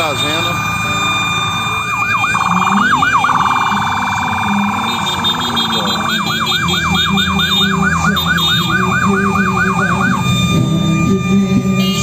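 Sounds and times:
electronic siren wailing and yelping: 0:00.0 - 0:12.0.

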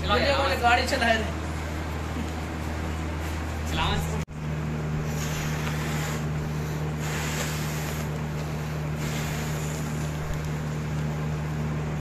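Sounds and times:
steady low hum: 0:00.0 - 0:12.0
breaths blown into balloon: 0:05.1 - 0:08.1.

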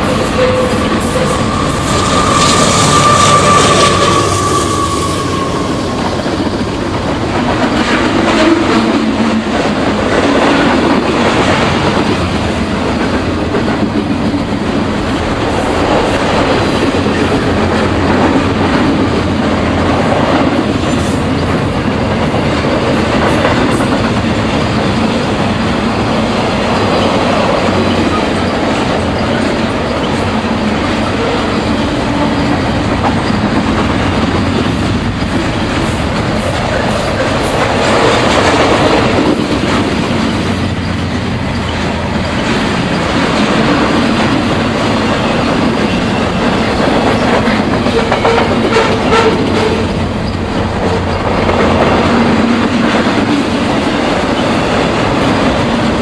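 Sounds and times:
train wheels rumbling on rails: 0:00.0 - 0:56.0
wheels clickety-clack on rail joints: 0:00.0 - 0:56.0.

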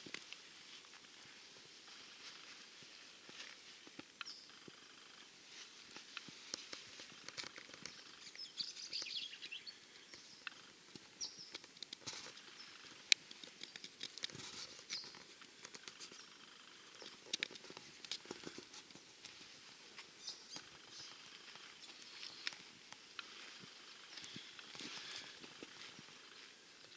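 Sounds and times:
faint bird chirps: 0:04.2 - 0:05.4, 0:07.8 - 0:11.6, 0:12.4 - 0:13.8, 0:14.7 - 0:15.2, 0:15.9 - 0:17.3, 0:20.1 - 0:22.6, 0:23.2 - 0:26.9
light clicks and ticks: 0:10.1 - 0:12.4, 0:13.0 - 0:16.2.

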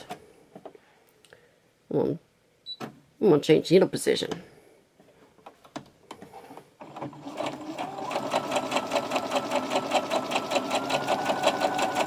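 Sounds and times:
sewing machine stitching: 0:06.8 - 0:12.0
sewing machine motor whine: 0:06.9 - 0:12.0.

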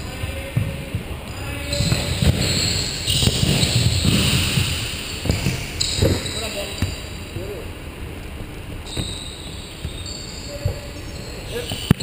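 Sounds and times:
ball thudding on wooden court: 0:00.4 - 0:07.0.

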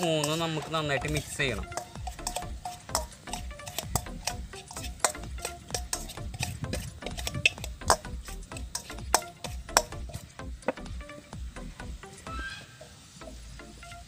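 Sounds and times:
metal spoon scraping steel bowl: 0:00.0 - 0:10.3.

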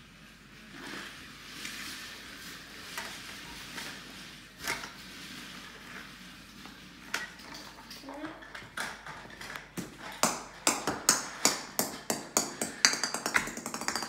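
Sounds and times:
toy cars clicking and knocking: 0:11.1 - 0:14.0.

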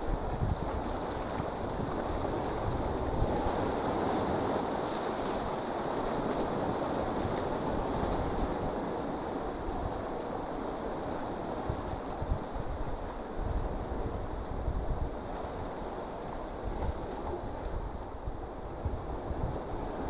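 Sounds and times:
surf breaking over rocks: 0:00.0 - 0:20.0
wind rumbling on microphone: 0:00.0 - 0:20.0.

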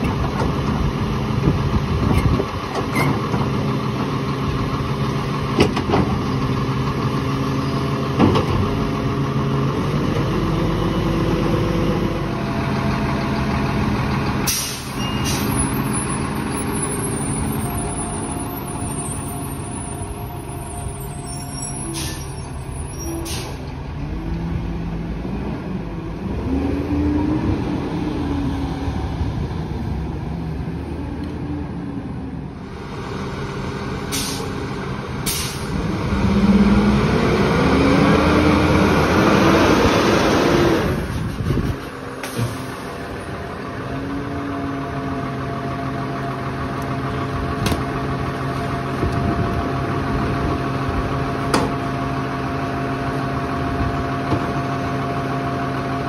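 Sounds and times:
air brake hisses: 0:14.5 - 0:15.7, 0:21.7 - 0:22.6, 0:23.2 - 0:23.7, 0:34.1 - 0:34.6, 0:35.2 - 0:35.7
garbage truck engine revving: 0:35.3 - 0:56.0.

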